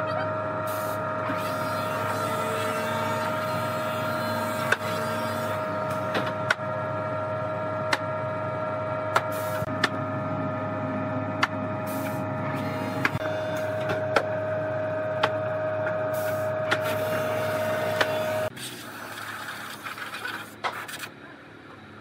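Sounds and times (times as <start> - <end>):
woodworking machine humming: 1.0 - 18.5.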